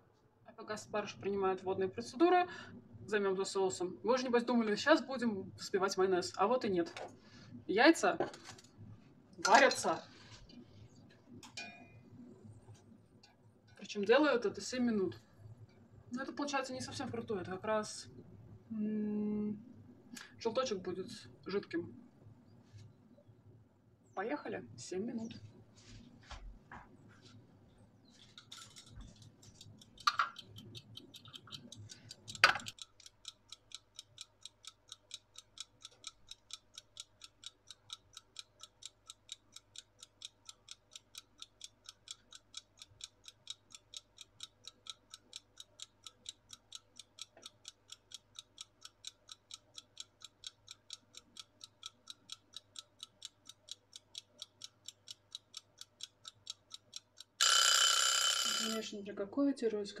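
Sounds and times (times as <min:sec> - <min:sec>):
kitchen timer ticking: 0:09.4 - 0:10.0, 0:28.4 - 0:58.9.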